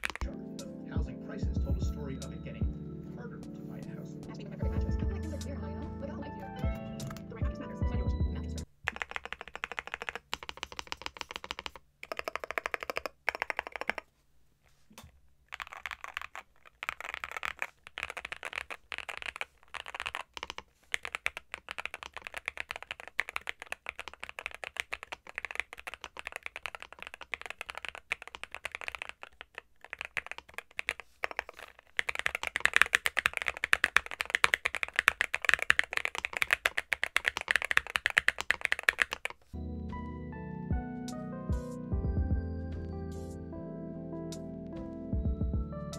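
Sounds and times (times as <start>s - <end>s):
mechanical keyboard typing: 0.0s - 0.4s, 8.9s - 14.1s, 15.5s - 39.5s.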